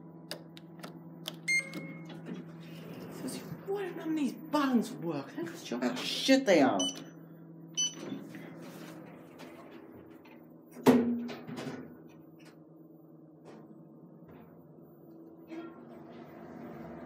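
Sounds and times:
lift button beep: 1.4 - 2.2, 6.8 - 7.1, 7.8 - 8.2.

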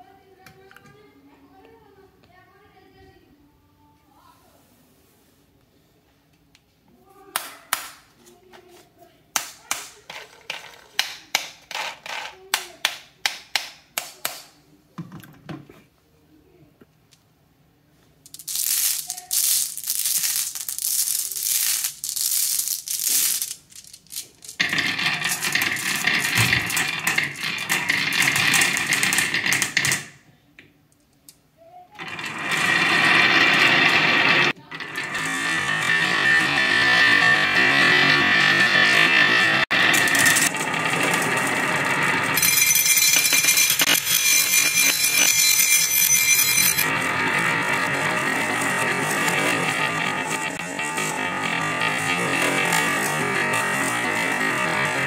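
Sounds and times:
glass marbles clattering on track: 18.3 - 30.1, 32.0 - 47.0.

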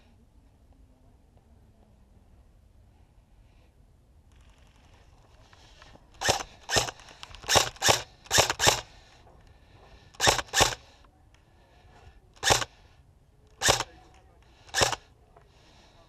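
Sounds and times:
airsoft rifle shots: 6.2 - 8.8, 10.2 - 10.8, 12.4 - 12.7, 13.6 - 13.9, 14.7 - 15.1.

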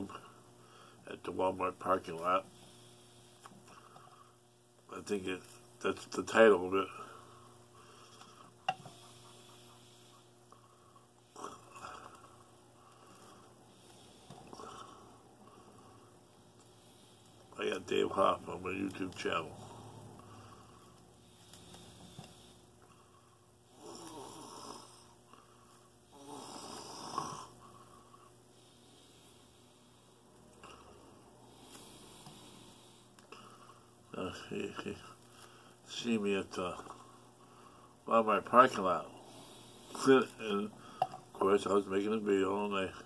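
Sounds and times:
man's congested nasal breathing: 0.0 - 1.0, 2.5 - 4.4, 6.8 - 17.6, 19.5 - 34.0, 36.8 - 38.0, 39.1 - 41.3.

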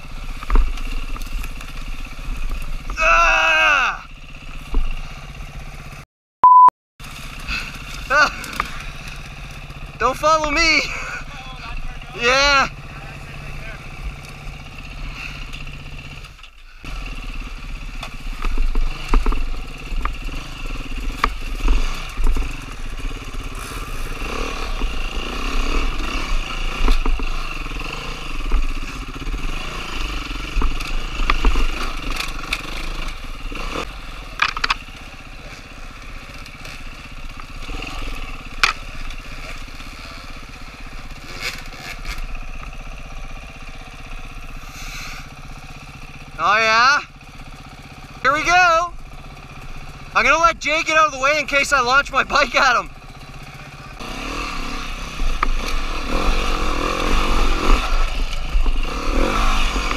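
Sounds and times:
dirt bike engine revving: 0.0 - 6.0, 7.0 - 59.9.

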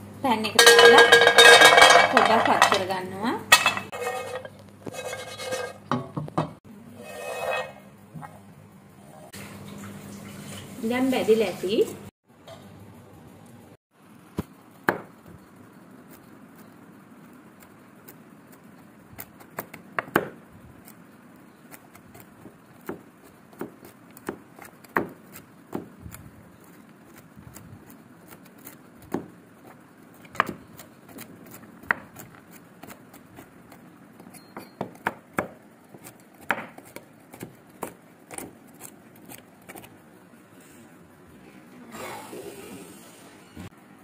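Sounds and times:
knife chopping nuts on wooden board: 19.2 - 20.4, 21.7 - 26.0, 28.3 - 39.9.

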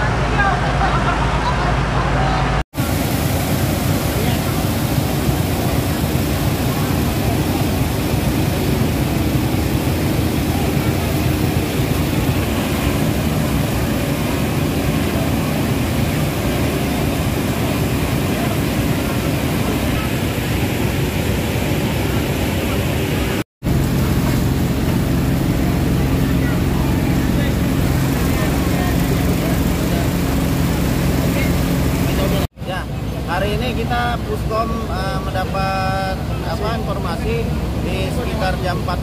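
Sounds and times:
pump engines running: 0.0 - 39.0
hose water jets hissing: 2.8 - 21.4.

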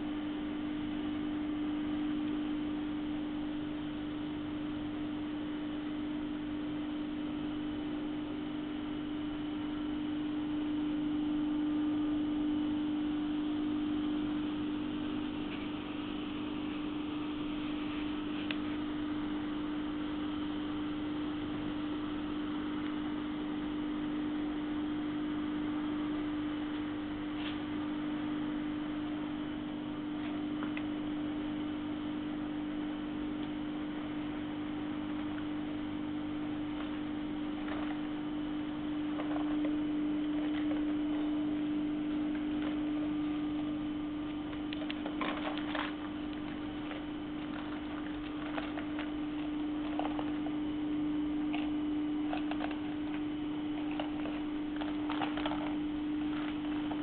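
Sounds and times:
shrink-wrapping machine humming: 0.0 - 57.0
steady machine tone: 0.0 - 57.0
plastic film crackling: 42.0 - 50.8, 51.5 - 57.0.

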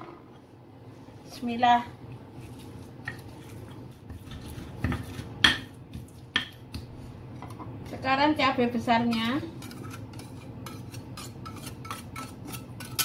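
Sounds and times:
stone pestle grinding in mortar: 3.2 - 6.2, 9.1 - 13.0.

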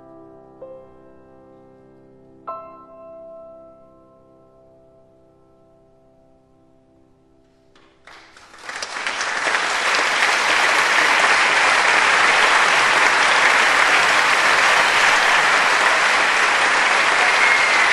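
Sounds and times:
crowd applauding: 7.8 - 17.9.

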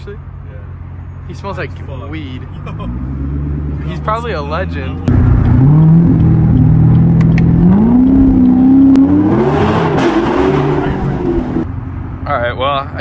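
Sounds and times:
car engine accelerating: 2.4 - 11.7.

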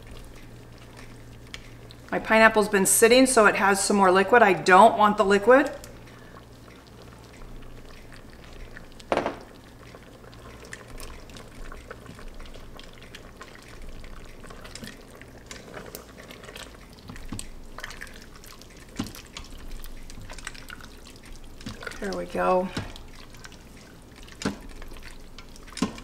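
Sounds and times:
stirring thick sauce: 0.0 - 2.1, 6.0 - 9.1, 9.8 - 26.0
knock on pot: 9.1 - 9.5.

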